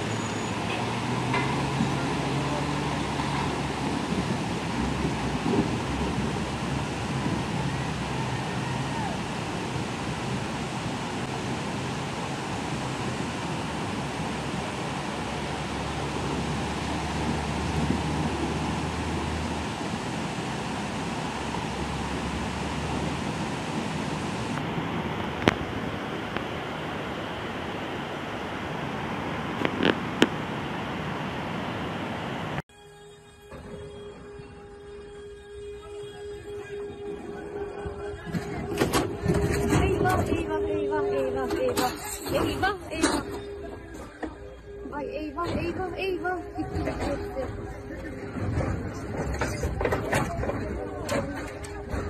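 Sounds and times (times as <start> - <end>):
river water rushing: 0.0 - 32.6
truck engine running low: 0.0 - 32.6, 33.2 - 52.0.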